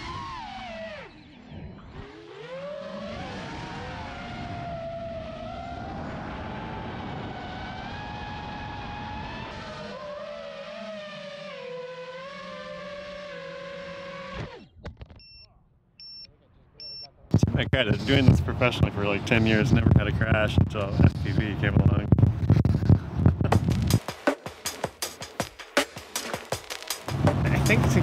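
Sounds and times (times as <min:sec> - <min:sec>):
drone motors whining: 0:00.0 - 0:15.4
short electronic beep: 0:15.2 - 0:17.1.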